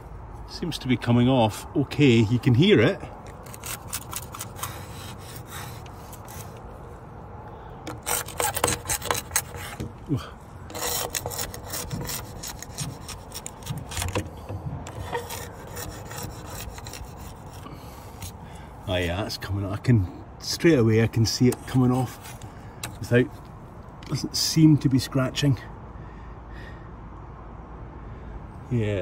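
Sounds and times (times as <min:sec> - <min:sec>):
metal scraper blade scraping glass: 0:03.4 - 0:06.5, 0:07.9 - 0:10.0, 0:10.7 - 0:18.4.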